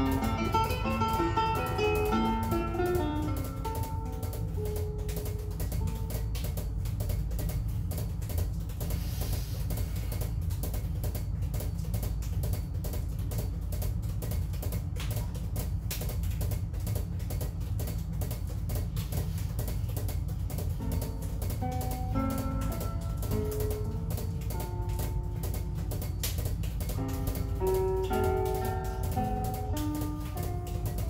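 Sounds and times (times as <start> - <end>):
balls bouncing off floor: 0.0 - 9.0.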